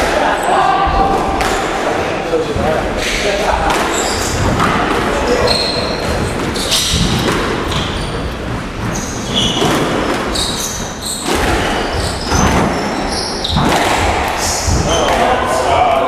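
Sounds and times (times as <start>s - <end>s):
squash ball hitting rackets and walls: 1.0s - 2.0s, 2.6s - 15.6s
shoes squeaking on floor: 3.0s - 15.3s.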